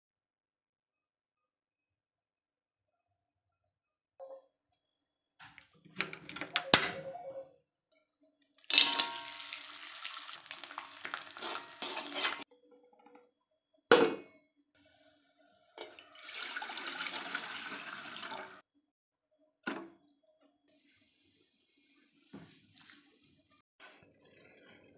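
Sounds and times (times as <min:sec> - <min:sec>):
metal tongs turning food: 0:08.7 - 0:12.4
water running into a saucepan: 0:08.7 - 0:12.4, 0:15.8 - 0:18.6
oil sizzling in a wok: 0:08.7 - 0:12.5.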